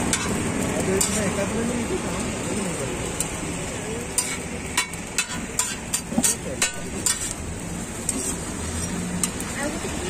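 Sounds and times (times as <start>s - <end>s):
metal spatula clacking on griddle: 0.0s - 1.4s, 4.0s - 7.4s
steady sizzle: 0.0s - 10.0s.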